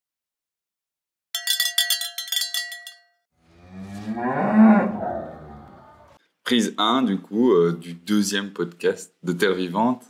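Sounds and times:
cowbell clanking: 0:01.4 - 0:03.2
cow mooing: 0:03.4 - 0:06.2.

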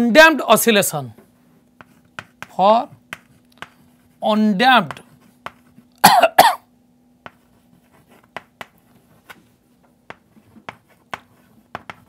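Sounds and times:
chalk tapping on blackboard: 0:01.2 - 0:04.1, 0:04.8 - 0:05.9, 0:07.2 - 0:12.0
man coughing: 0:06.0 - 0:06.7.

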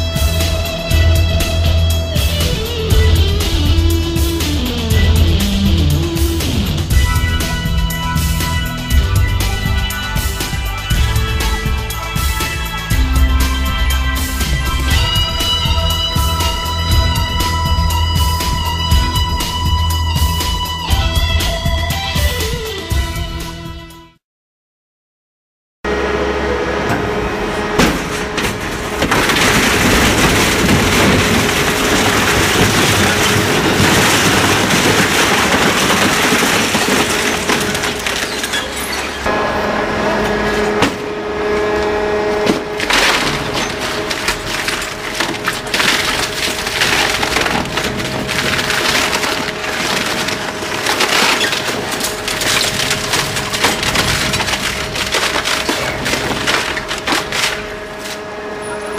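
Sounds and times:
industrial shredder crushing material: 0:00.0 - 0:22.6, 0:25.9 - 0:58.9
shredder drive hum: 0:25.9 - 0:58.9.

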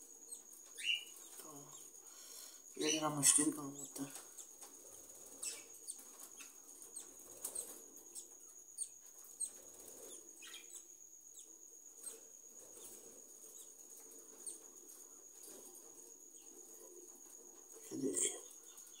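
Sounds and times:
parrot chick peeping: 0:00.3 - 0:01.9.

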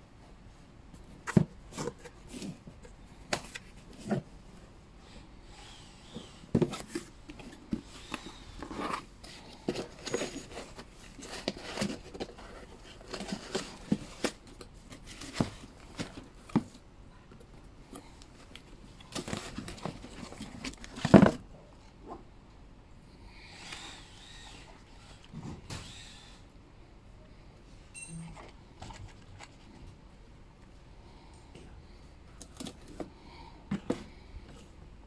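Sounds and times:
foam and cardboard box handled: 0:06.1 - 0:16.8, 0:18.4 - 0:21.4.

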